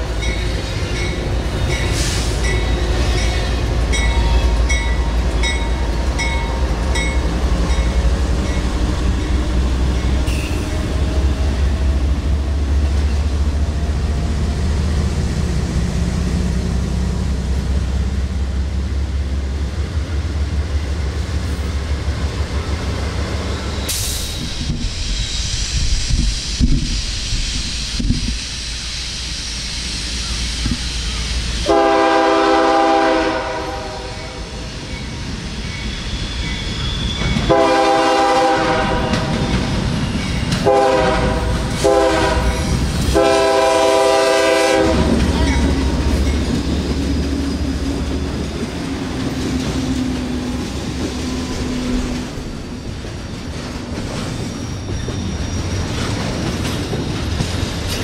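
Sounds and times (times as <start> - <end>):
train wheels clicking over rail joints: 0.0 - 32.1, 34.4 - 58.0
locomotive horn blasts: 31.6 - 34.4, 37.4 - 39.5, 40.6 - 45.7.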